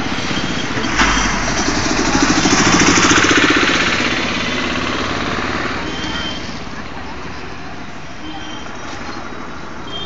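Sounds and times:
vehicle engine knocking: 1.3 - 5.6.

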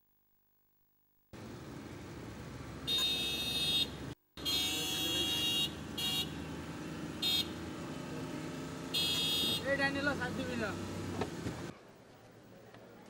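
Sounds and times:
street noise: 1.4 - 13.0
high horn-like tone blaring: 2.9 - 6.3.

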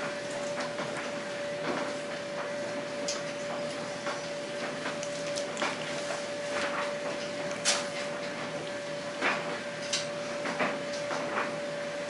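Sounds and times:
steady hum: 0.0 - 12.0
toddler chewing corn: 4.9 - 6.7.

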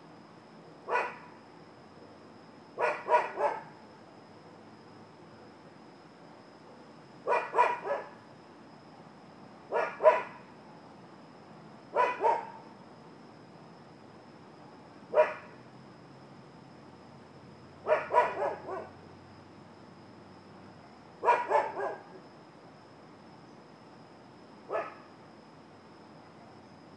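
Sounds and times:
faint high-pitched whine: 0.0 - 26.9
dog barking: 0.9 - 1.3, 2.8 - 3.7, 7.3 - 8.2, 9.7 - 10.4, 12.0 - 12.6, 15.1 - 15.5, 17.8 - 19.0, 21.2 - 22.1, 24.7 - 25.0.

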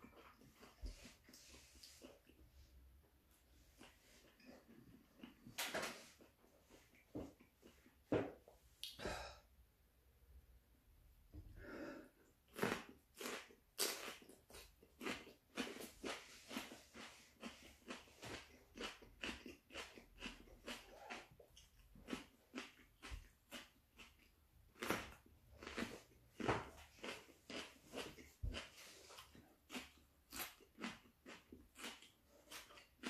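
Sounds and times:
person chewing chili pepper: 0.0 - 5.6, 6.2 - 8.0, 12.2 - 33.0
heavy breaths: 11.4 - 12.3.

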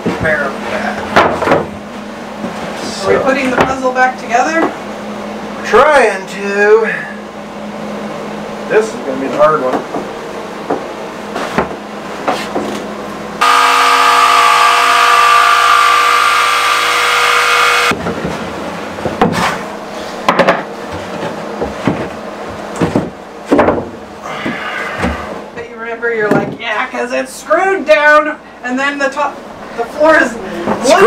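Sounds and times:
electric jigsaw cutting wood: 13.4 - 17.9.

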